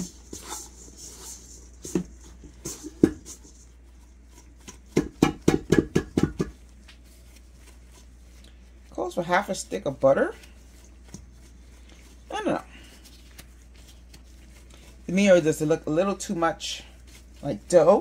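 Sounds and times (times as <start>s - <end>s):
dough squishing and rubbing: 0.0s - 18.0s
clicks and taps on bowl: 4.7s - 6.6s.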